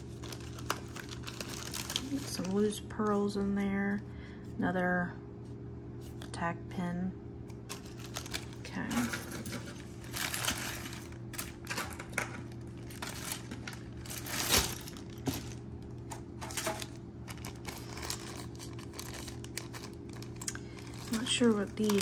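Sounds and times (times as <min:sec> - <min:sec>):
plastic bag crinkling: 0:00.0 - 0:02.9, 0:07.6 - 0:22.0
faint low hum: 0:00.0 - 0:22.0.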